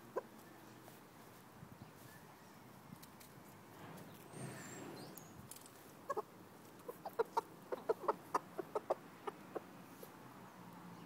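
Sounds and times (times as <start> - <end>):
chickens clucking: 5.8 - 10.1.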